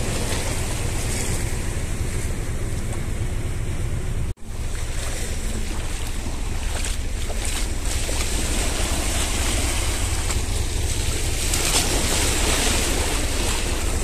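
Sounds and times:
waves washing over rocky shore: 0.0 - 1.8, 4.5 - 14.0.

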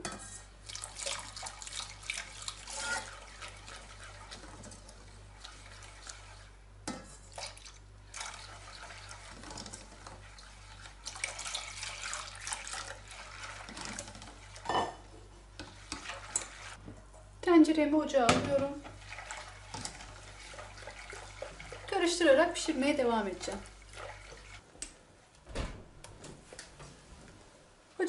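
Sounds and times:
whisk scraping against a pot: 0.0 - 14.7, 15.4 - 16.8, 18.8 - 24.6
liquid swishing: 0.2 - 14.7, 15.6 - 16.8, 18.8 - 24.7.

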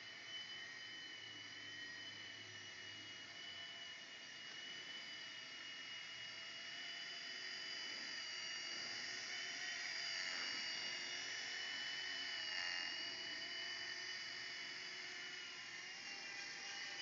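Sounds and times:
toy helicopter rotor whine: 0.0 - 17.0.

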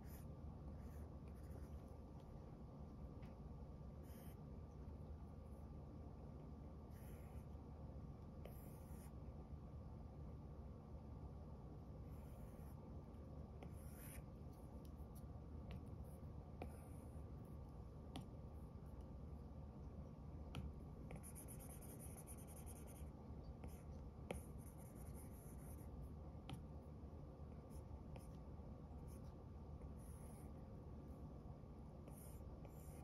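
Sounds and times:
faint steady hum: 0.0 - 33.0
stylus scratching on glass screen: 21.0 - 26.0.

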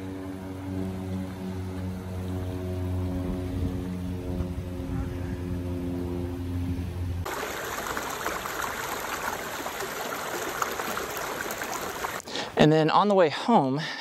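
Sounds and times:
creek flowing over rocks: 7.3 - 12.2.

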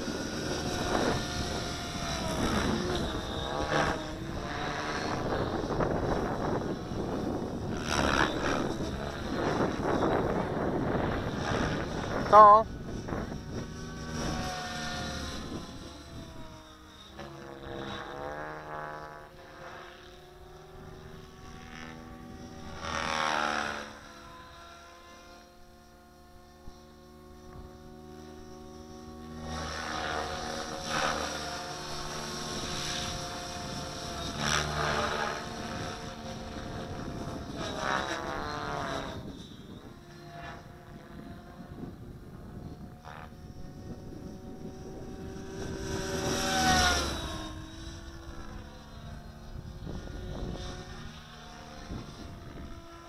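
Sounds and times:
rc helicopter rotor whine: 0.0 - 53.0.

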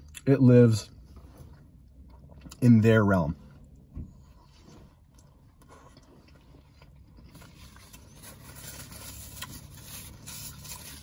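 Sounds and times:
quiet chewing: 3.4 - 10.1
paper napkin rustling: 7.6 - 11.0.

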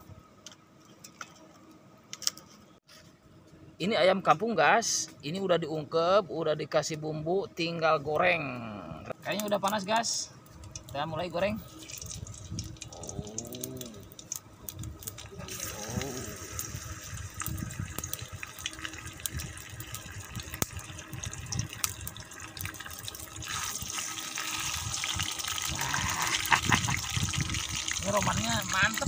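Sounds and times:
oil popping: 11.7 - 29.0
chicken sizzling in hot oil: 14.2 - 29.0.

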